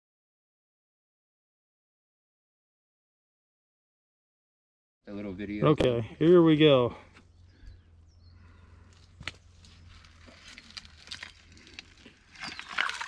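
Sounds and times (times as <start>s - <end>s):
shovel scraping wet gravel: 12.3s - 13.0s.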